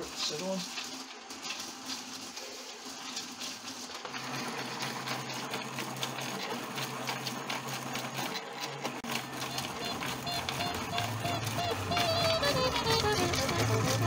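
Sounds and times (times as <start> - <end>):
rock tumbler motor hum: 0.0 - 14.0
small clicks of tumbling load: 0.0 - 14.0.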